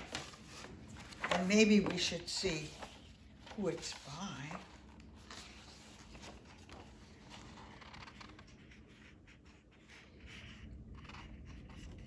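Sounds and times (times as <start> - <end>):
paper pages turning: 0.0 - 12.0.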